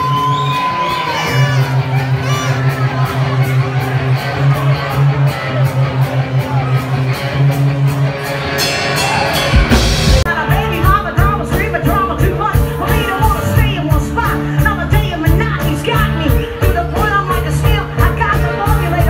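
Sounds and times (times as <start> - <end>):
drums: 0.0 - 19.0
electric guitars: 0.0 - 19.0
live rock band: 0.0 - 19.0
person singing: 8.9 - 19.0.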